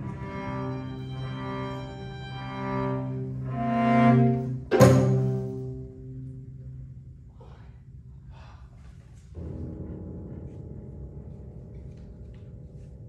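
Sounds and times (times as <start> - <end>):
string quartet chord: 0.0 - 6.8
low steady rumble: 0.0 - 13.0.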